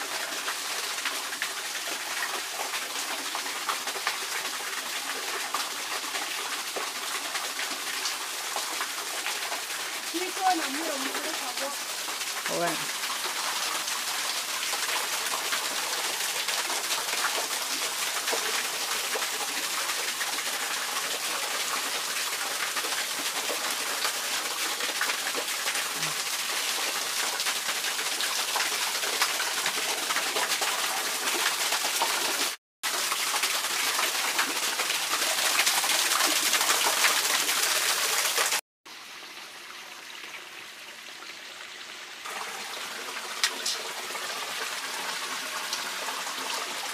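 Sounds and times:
waterfall splashing onto rocks: 0.0 - 38.6, 42.2 - 46.8.

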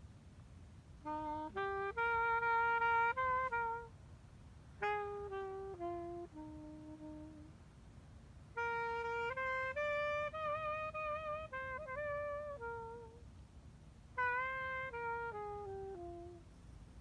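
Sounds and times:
saxophone slow melody: 1.0 - 4.0, 4.7 - 7.6, 8.5 - 13.3, 14.1 - 16.7.

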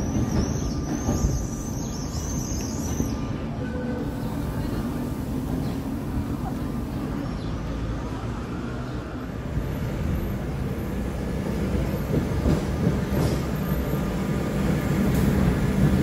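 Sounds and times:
electric tram rumbling: 0.0 - 16.0.

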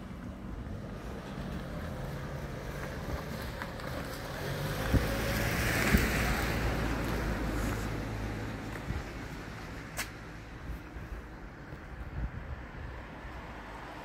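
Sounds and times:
vehicle passing: 0.6 - 10.4.

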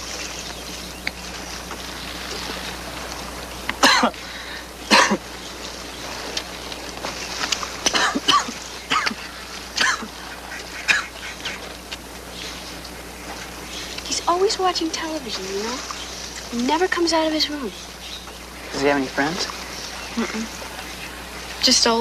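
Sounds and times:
person coughing: 3.8 - 4.2, 4.9 - 5.2, 7.9 - 9.2, 9.8 - 10.1.

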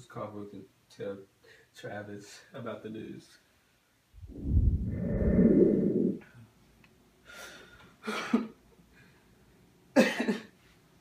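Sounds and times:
microphone handling rumble: 4.2 - 6.2.

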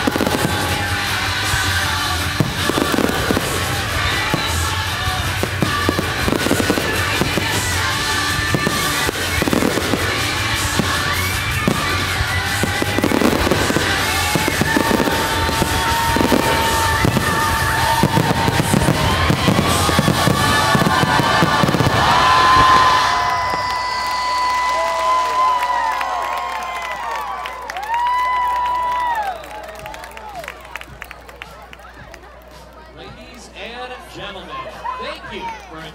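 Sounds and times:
loud music over speakers: 0.0 - 23.0
fireworks bursting: 0.0 - 26.2.

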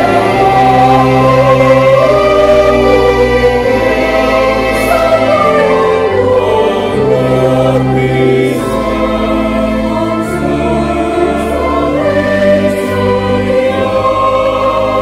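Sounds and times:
choir singing a hymn: 0.0 - 15.0.

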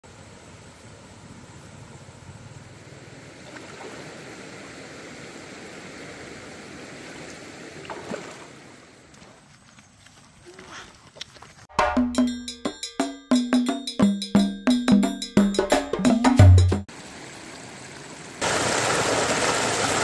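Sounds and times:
stream flowing: 2.6 - 9.4, 16.8 - 20.0.

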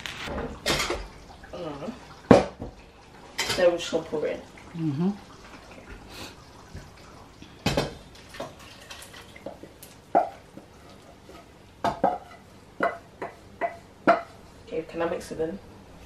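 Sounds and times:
wooden spoon knocking on saucepan: 11.8 - 14.4.

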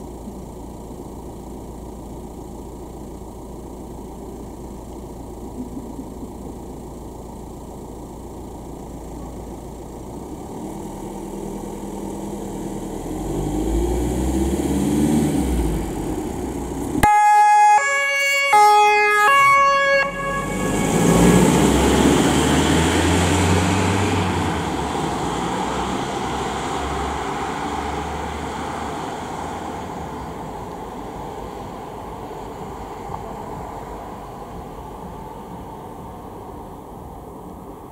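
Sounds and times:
van engine pulling away: 0.0 - 37.9
two-tone siren: 17.0 - 23.2.

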